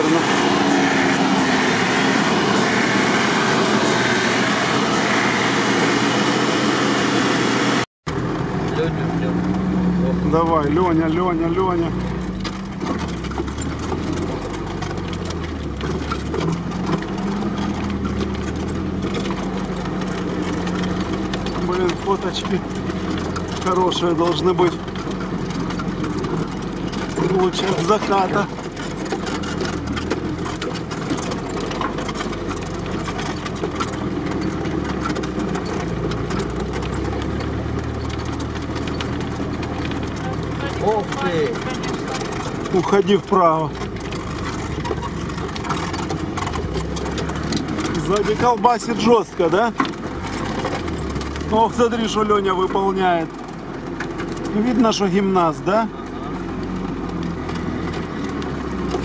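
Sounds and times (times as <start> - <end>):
vehicle engine from inside cabin: 0.0 - 59.0.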